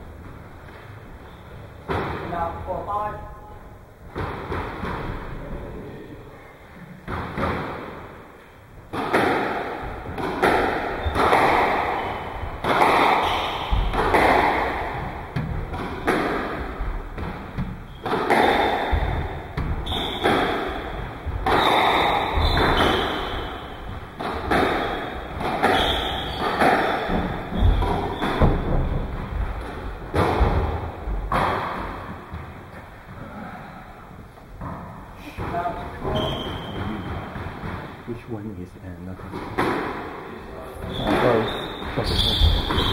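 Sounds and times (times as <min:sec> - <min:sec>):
squash ball hits: 0:01.8 - 0:02.5, 0:04.1 - 0:05.3, 0:07.0 - 0:08.0, 0:08.9 - 0:32.6, 0:34.6 - 0:38.0, 0:39.3 - 0:40.2, 0:40.8 - 0:42.9.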